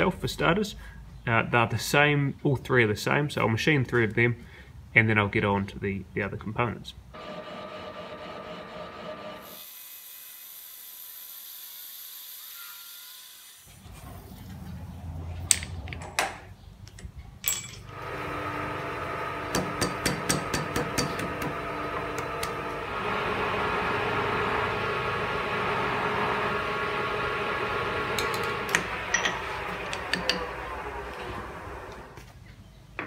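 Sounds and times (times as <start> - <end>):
metal lathe running: 7.2 - 9.5, 17.9 - 32.2
lathe tool cutting metal: 7.2 - 9.7, 17.9 - 32.1.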